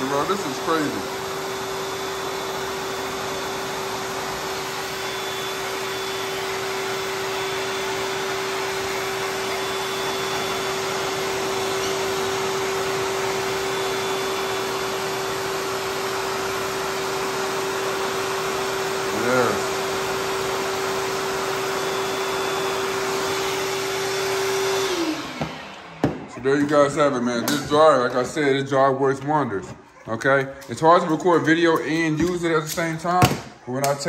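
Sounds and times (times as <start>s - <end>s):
motor whine: 0.0s - 27.3s
dog dryer blowing air: 0.0s - 34.0s.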